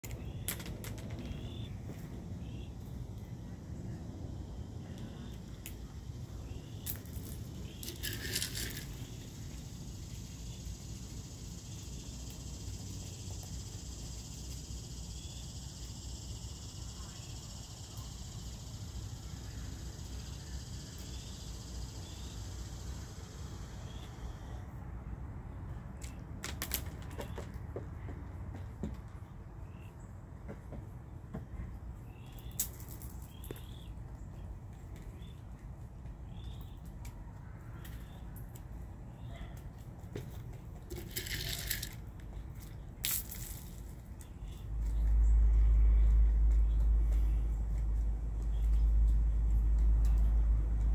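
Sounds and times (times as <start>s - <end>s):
insects buzzing: 1.2s - 24.6s
bills tapping on concrete: 6.8s - 9.3s, 26.0s - 27.8s, 40.1s - 45.2s.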